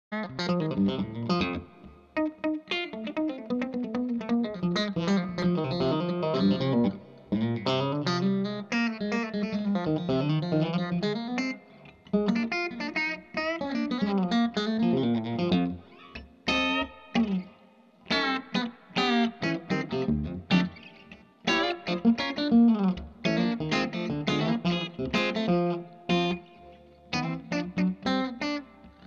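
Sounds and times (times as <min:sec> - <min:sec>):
electric guitar with delay: 0:00.2 - 0:29.0.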